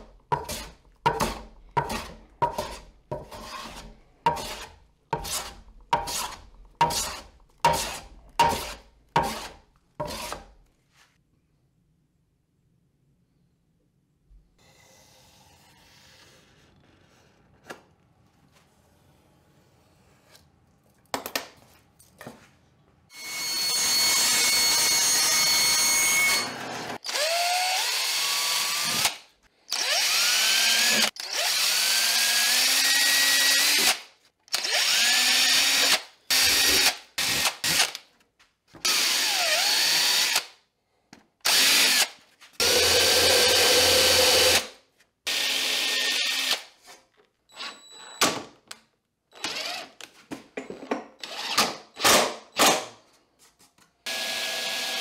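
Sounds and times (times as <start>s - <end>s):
cordless drill running: 23.2s - 37.9s, 38.9s - 40.4s, 41.4s - 44.7s, 45.3s - 46.6s, 54.1s - 55.0s.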